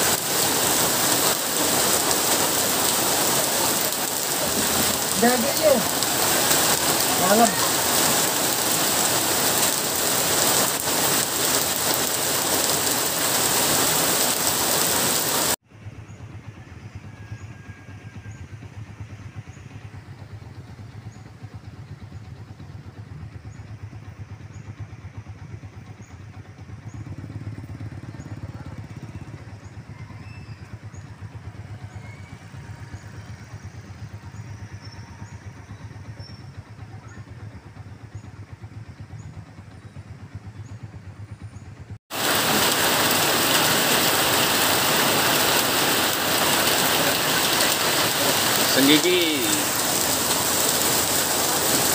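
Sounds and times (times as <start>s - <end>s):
heavy rain on a street: 0.0s - 15.6s, 42.1s - 51.9s
motorcycle and car engines: 0.0s - 51.9s.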